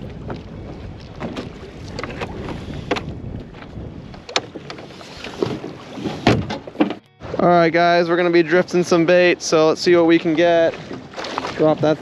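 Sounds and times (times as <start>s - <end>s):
wind noise on microphone: 0.0s - 7.4s
trolling motor knocks and clunks: 0.1s - 7.1s.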